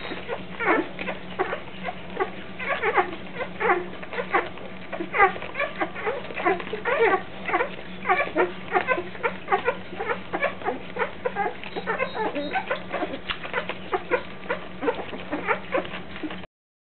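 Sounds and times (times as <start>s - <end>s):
puppies squeaking and whimpering: 0.0s - 16.4s.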